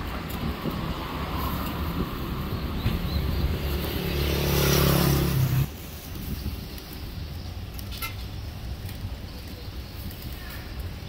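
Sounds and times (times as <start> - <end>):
vehicle engine passing by: 0.0 - 5.9
street background noise: 0.0 - 11.0.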